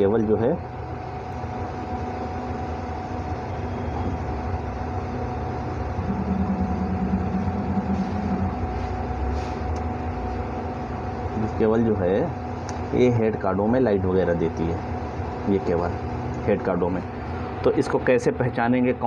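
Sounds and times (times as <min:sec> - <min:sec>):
constant whine: 0:00.0 - 0:19.0
low mechanical rumble and hum: 0:00.0 - 0:19.0
deeper drone: 0:03.4 - 0:11.6.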